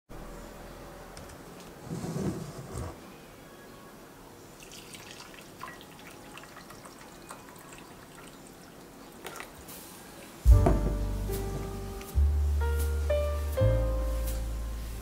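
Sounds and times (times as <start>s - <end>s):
coffee trickling into a glass: 4.6s - 9.6s.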